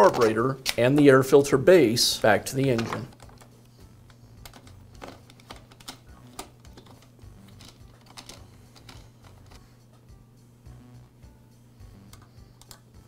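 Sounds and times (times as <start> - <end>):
plastic parts clicking and tapping: 2.6 - 3.5, 4.1 - 9.6.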